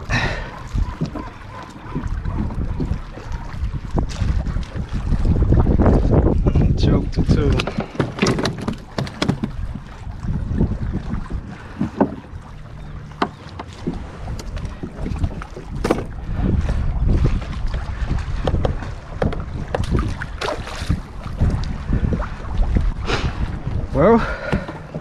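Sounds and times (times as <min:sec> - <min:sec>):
water against kayak hull: 0:00.0 - 0:25.0
wind rumbling on microphone: 0:00.0 - 0:25.0
knocks and clicks on kayak: 0:00.5 - 0:04.7, 0:07.1 - 0:09.9, 0:11.7 - 0:12.4, 0:13.0 - 0:16.2, 0:17.7 - 0:21.7, 0:24.4 - 0:25.0.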